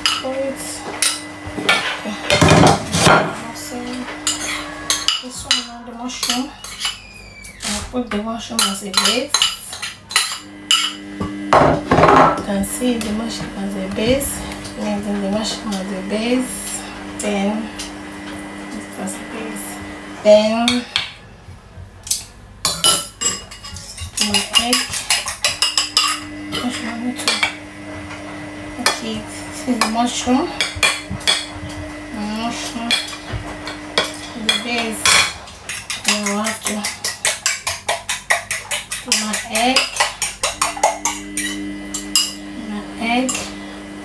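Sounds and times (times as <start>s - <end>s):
spoon clinking against ceramic bowl: 34.0s - 42.4s.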